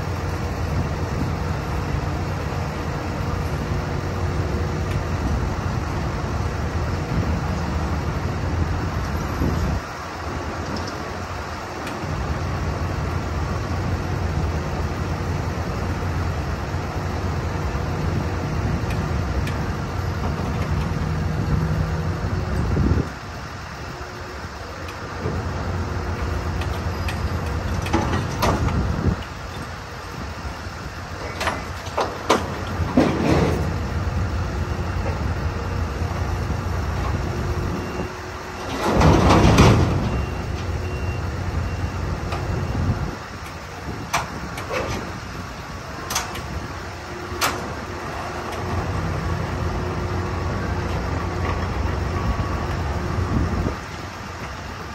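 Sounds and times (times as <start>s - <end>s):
diesel engine running under load: 0.0s - 54.9s
truck landing on its wheels: 31.2s - 33.8s, 38.6s - 40.2s.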